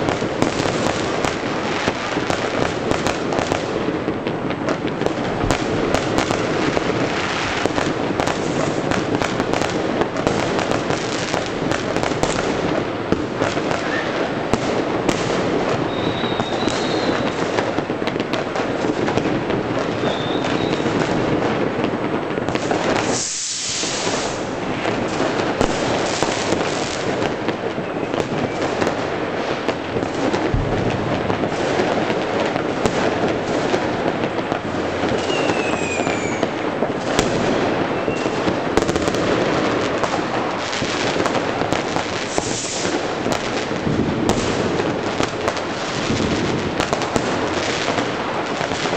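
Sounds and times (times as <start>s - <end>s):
fireworks crackling and banging: 0.0s - 48.9s
rocket whistles: 13.8s - 14.2s, 15.9s - 17.4s, 20.0s - 21.0s, 35.2s - 36.5s, 37.9s - 38.4s
loud hiss: 23.0s - 24.6s, 42.2s - 43.0s.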